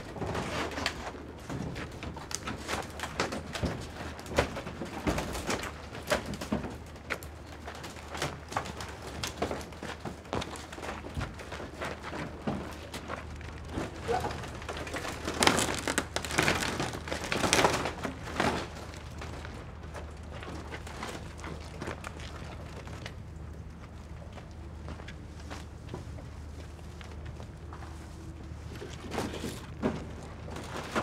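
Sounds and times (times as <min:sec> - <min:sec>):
steady low hum: 0:00.0 - 0:31.0
plastic skin crinkling: 0:13.2 - 0:22.3.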